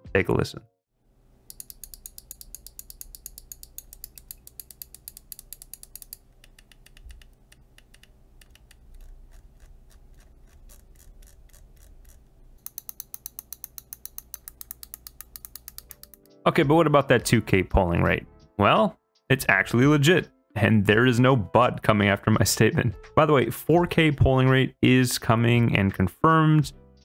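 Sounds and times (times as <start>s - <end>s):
mouse scroll wheel ticking: 1.4s - 16.3s.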